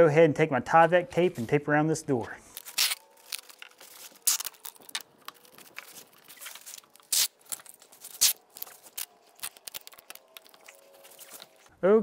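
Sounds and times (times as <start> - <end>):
tape ripping and crinkling: 2.5 - 11.7.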